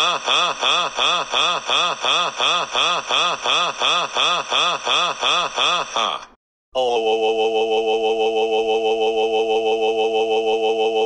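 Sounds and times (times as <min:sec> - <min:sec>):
cartoon character laughing: 0:00.0 - 0:06.4.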